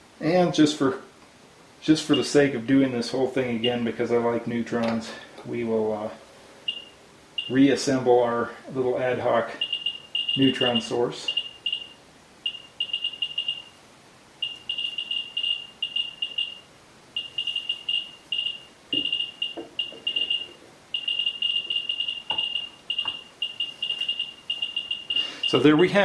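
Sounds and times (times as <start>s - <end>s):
high-pitched detector chirps: 6.7s - 7.6s, 9.5s - 13.8s, 14.4s - 25.9s.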